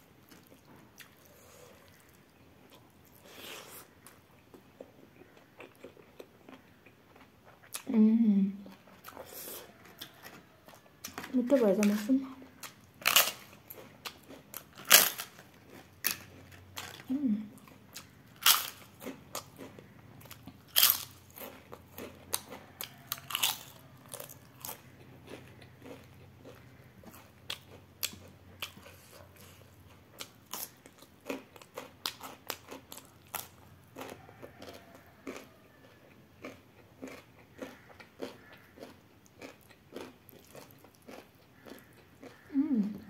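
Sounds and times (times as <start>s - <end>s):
crunching crispy food: 8.8s - 42.5s.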